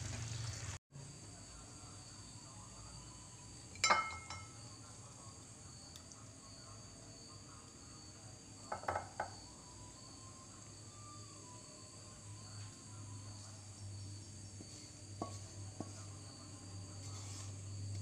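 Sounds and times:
crickets trilling: 0:00.2 - 0:18.0
utensils knocking on ceramic plate: 0:03.8 - 0:04.5, 0:08.7 - 0:09.3.

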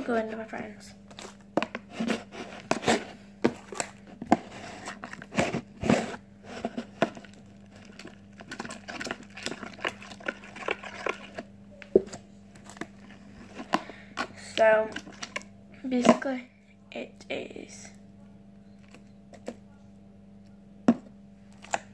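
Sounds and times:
faint steady hum: 0:00.0 - 0:21.9
slime squelching and crackling: 0:01.1 - 0:16.4.

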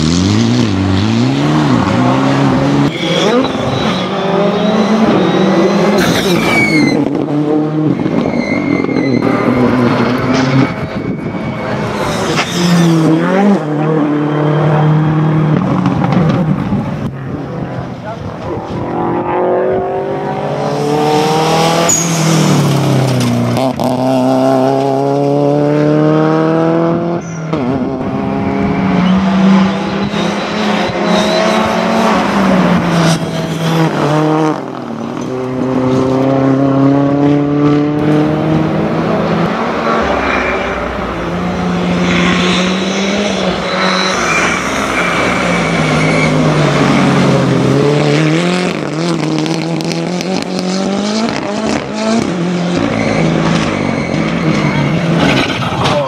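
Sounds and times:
rally car engines revving: 0:00.0 - 0:56.0.

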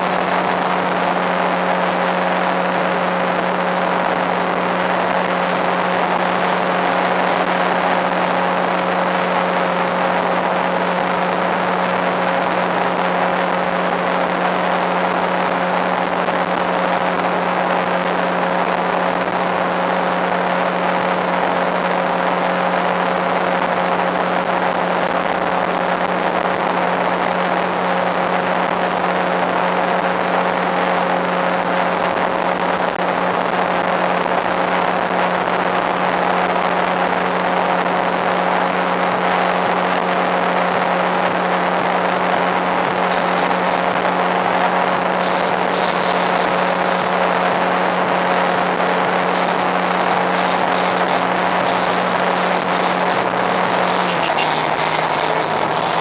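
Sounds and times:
boat motor humming: 0:00.0 - 0:25.0, 0:36.6 - 0:56.0.

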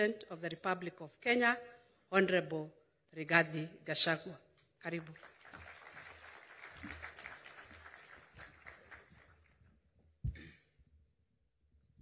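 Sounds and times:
audience applauding: 0:05.0 - 0:09.8.

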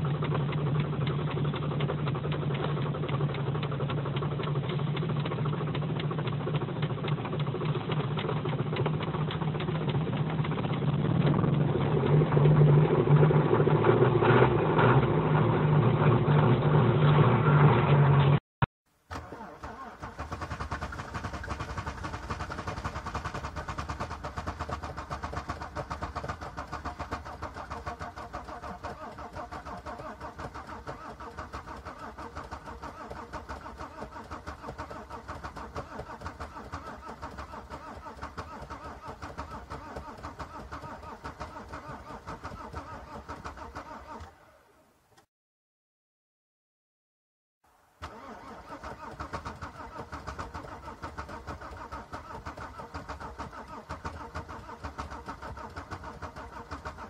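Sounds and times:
pulsing engine sound: 0:00.0 - 0:18.4, 0:19.8 - 0:43.8.

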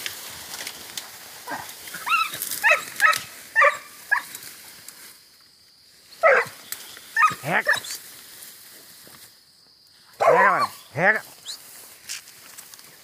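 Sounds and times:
dog barking in high yelps: 0:01.5 - 0:04.3, 0:06.2 - 0:06.6, 0:07.2 - 0:08.0, 0:10.2 - 0:10.8.

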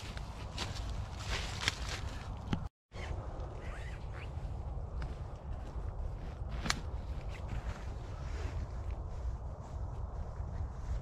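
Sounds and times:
footsteps crunching through leaves: 0:00.0 - 0:02.4.

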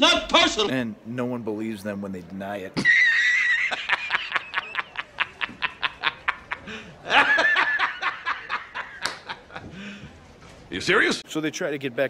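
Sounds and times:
man laughing hysterically: 0:02.8 - 0:09.4.

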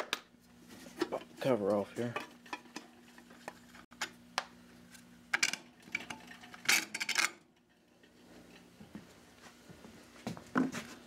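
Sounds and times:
metal cover clinking and rattling: 0:05.4 - 0:07.7.

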